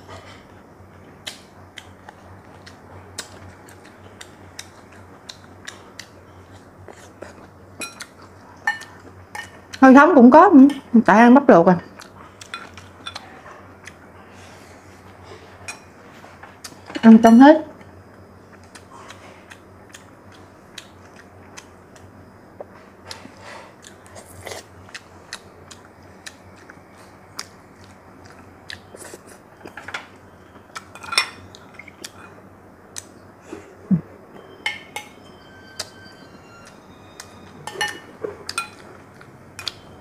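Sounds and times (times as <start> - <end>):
utensils clinking on glass bowls: 7.8 - 9.6, 30.9 - 32.3, 34.6 - 36.1, 37.6 - 38.9
chewing and mouth noises: 18.5 - 29.8.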